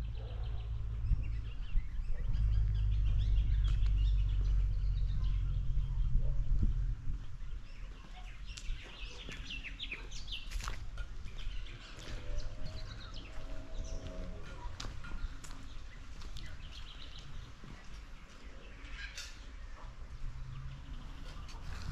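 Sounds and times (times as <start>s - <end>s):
low rumble: 0.0s - 9.0s
birds chirping: 0.0s - 21.9s.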